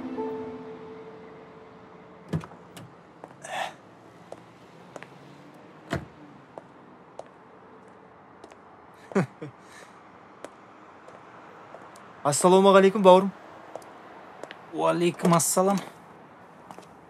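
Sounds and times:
music: 0.0s - 1.7s.

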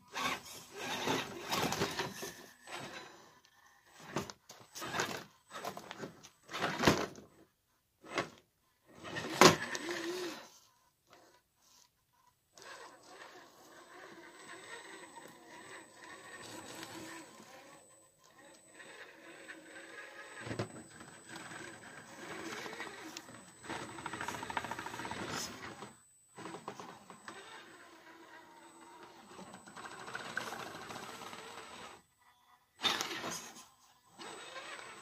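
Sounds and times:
electric motor and gearbox whining: 0.0s - 7.3s, 8.9s - 11.4s, 12.6s - 35.0s.

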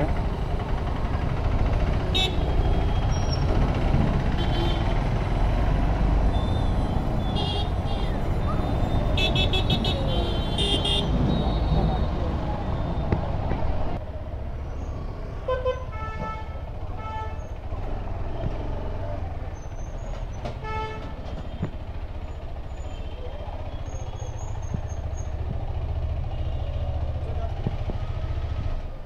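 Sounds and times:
motorcycle engine rumbling: 0.0s - 29.0s
vehicle horn toots: 2.1s - 3.1s, 4.4s - 4.9s, 7.2s - 8.2s, 8.9s - 11.9s.

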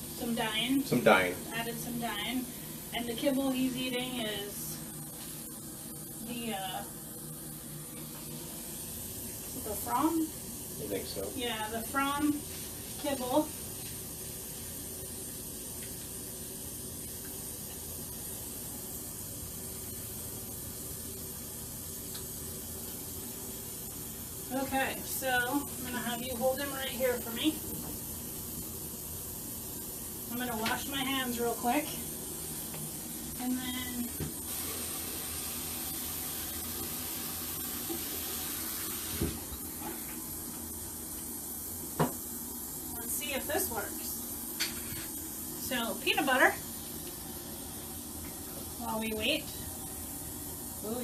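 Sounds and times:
steady hiss: 0.0s - 51.0s
running water: 33.4s - 51.0s.

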